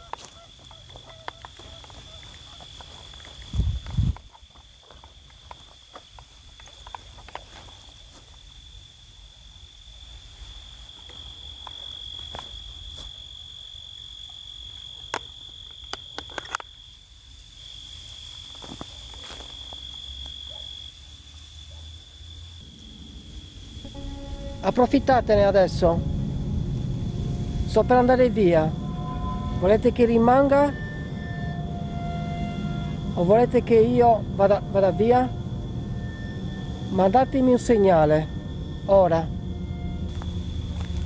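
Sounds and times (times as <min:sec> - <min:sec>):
cricket trilling: 0:00.0 - 0:41.0
low microphone rumble: 0:22.6 - 0:41.0.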